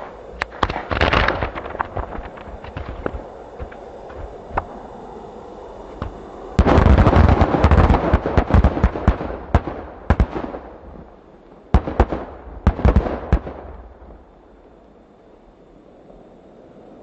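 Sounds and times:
rapid firework pops and bangs: 0.0s - 4.7s, 6.0s - 11.0s, 11.7s - 13.9s.

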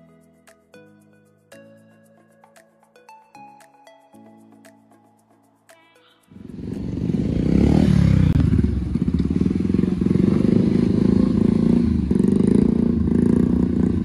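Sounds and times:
motorcycle engine running hard: 6.4s - 14.0s.

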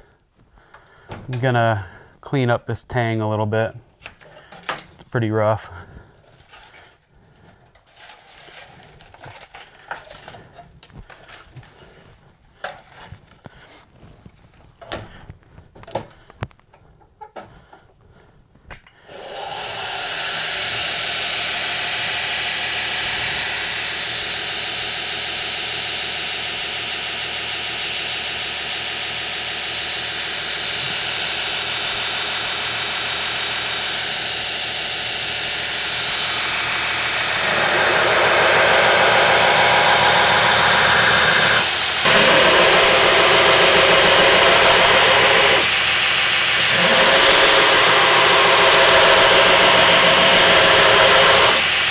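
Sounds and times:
belt grinder motor running: 19.1s - 51.9s
knife grinding on abrasive belt: 32.6s - 51.9s.

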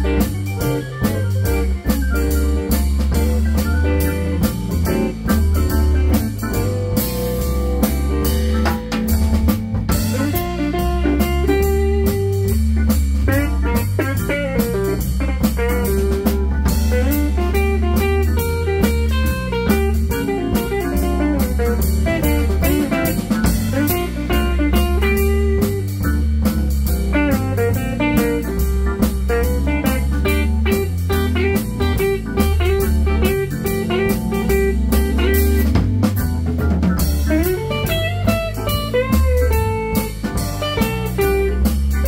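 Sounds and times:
electric guitar: 0.0s - 42.0s
live blues band playing: 0.0s - 42.0s
steady drum beat: 0.0s - 42.0s.

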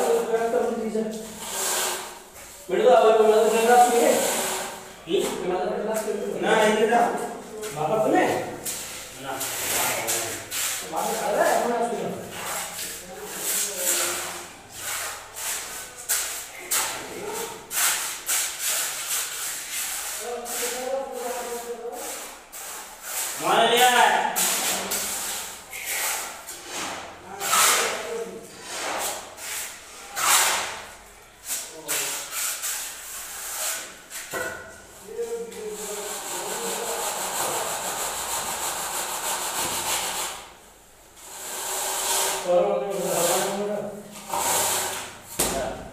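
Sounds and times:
straightedge scraping wet cement: 1.4s - 2.1s.

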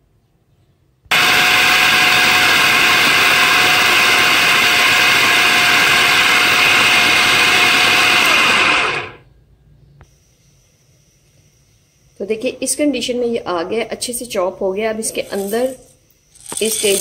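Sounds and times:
electric food chopper running: 1.1s - 9.2s.

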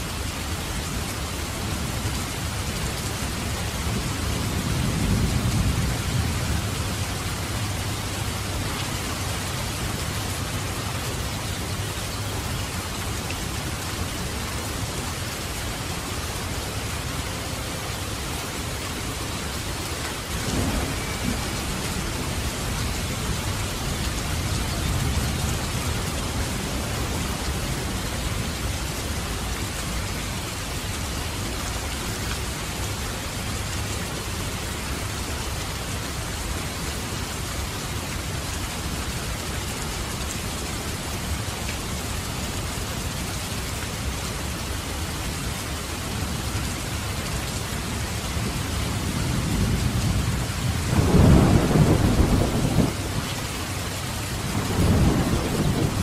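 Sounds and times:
steady rain falling: 0.0s - 56.0s
thunder rumbling: 19.7s - 29.3s, 49.0s - 56.0s.

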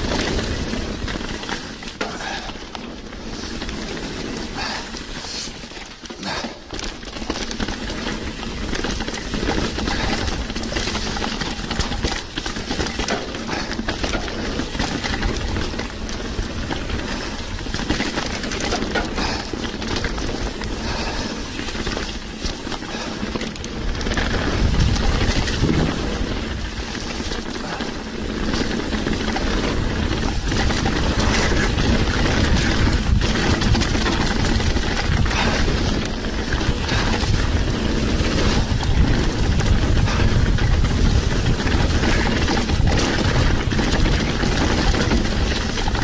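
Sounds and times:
bike tyres rumbling over dirt: 0.0s - 46.0s
wind rushing over microphone: 23.8s - 27.8s, 28.6s - 46.0s.

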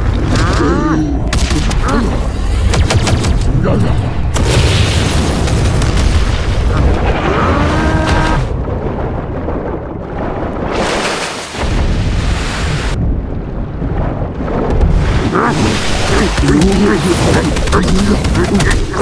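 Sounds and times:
heavy low rumble: 0.0s - 10.7s
cartoon explosions: 0.0s - 12.3s, 14.5s - 19.0s.

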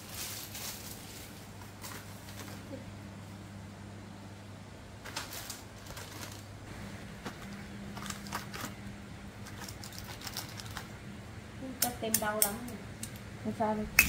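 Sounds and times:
plastic packets clicking and crinkling: 5.0s - 6.6s, 7.2s - 8.8s, 9.4s - 11.0s.

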